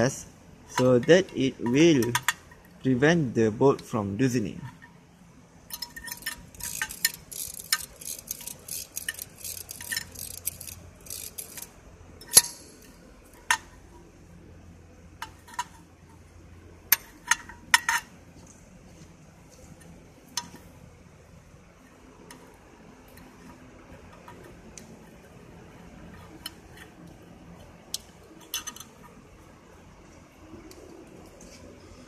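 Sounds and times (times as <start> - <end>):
small metallic clicks and scrapes: 5.6 - 14.0, 15.2 - 16.3, 21.8 - 29.4.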